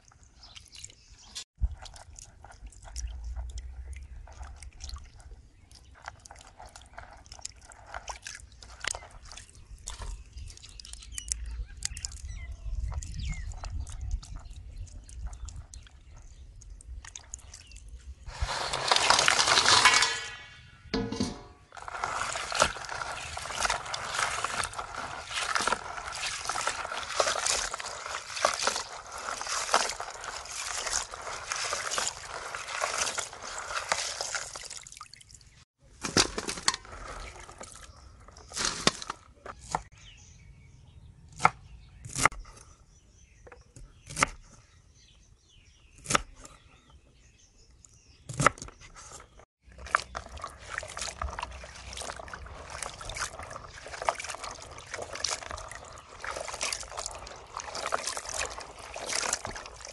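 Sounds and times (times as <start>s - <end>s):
running water splashing: 21.2s - 35.6s, 49.8s - 59.9s.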